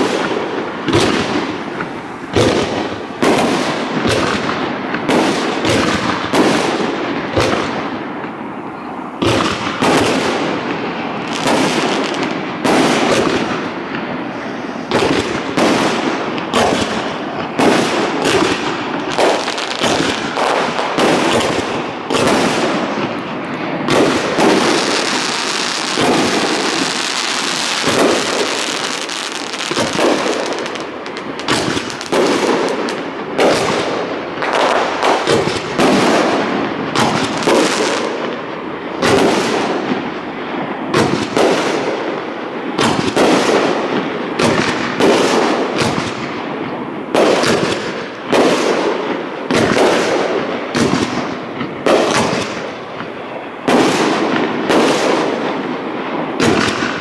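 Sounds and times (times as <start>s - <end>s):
firework shells bursting: 9.2s - 38.4s.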